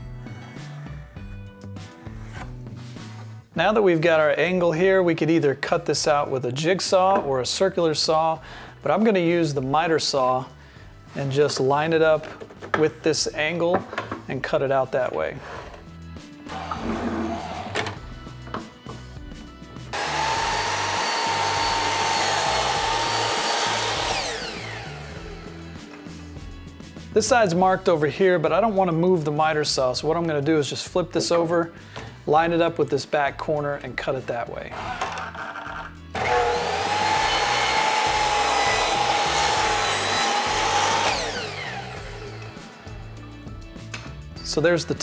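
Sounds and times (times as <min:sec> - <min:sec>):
saw cutting wood: 0:16.5 - 0:17.8, 0:19.9 - 0:26.4, 0:34.7 - 0:44.0
miter saw motor whining: 0:19.9 - 0:26.0, 0:36.2 - 0:43.3.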